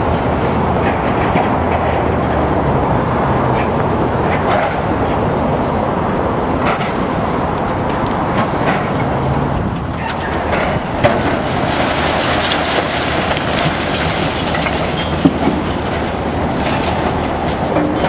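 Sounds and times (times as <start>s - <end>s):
excavator diesel engine: 0.0s - 18.0s
concrete cracking: 9.7s - 18.0s
falling rubble: 9.7s - 18.0s.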